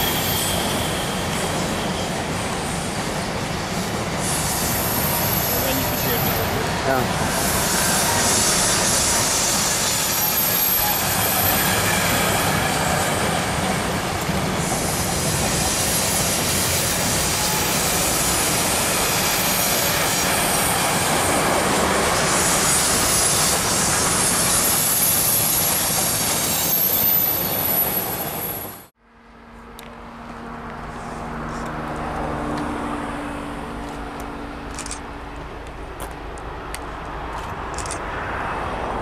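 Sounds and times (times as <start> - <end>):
high squeal of train wheels: 0.0 - 28.9
train wheels rumbling on rails: 0.0 - 28.9.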